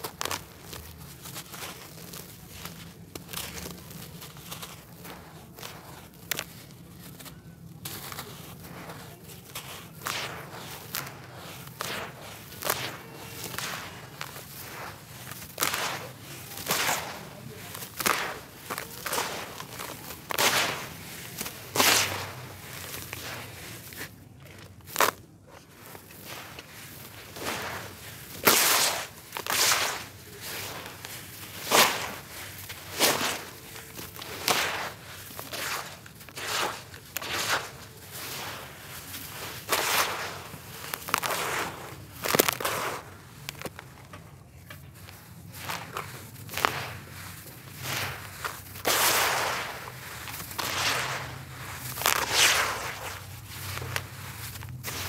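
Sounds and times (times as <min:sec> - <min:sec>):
wet dirt crunching by hand: 0:00.0 - 0:55.0
sharp crack: 0:07.9 - 0:23.6, 0:26.2 - 0:44.1, 0:45.6 - 0:55.0.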